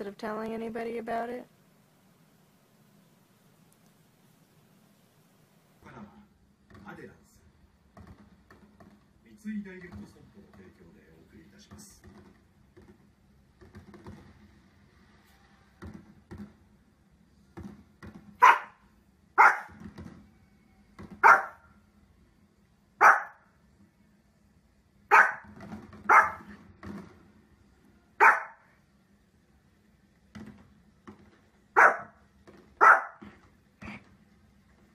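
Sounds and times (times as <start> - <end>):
small dog barking: 18.4 - 18.8, 19.4 - 19.8, 21.2 - 21.6, 23.0 - 23.4, 25.1 - 25.5, 26.1 - 26.5, 28.2 - 28.7, 31.8 - 32.2, 32.8 - 33.2.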